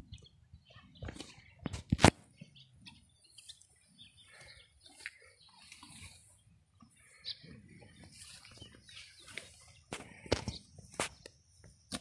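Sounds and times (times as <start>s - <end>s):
faint bird calls: 2.3s - 11.2s
cow cropping grass: 4.9s - 6.3s.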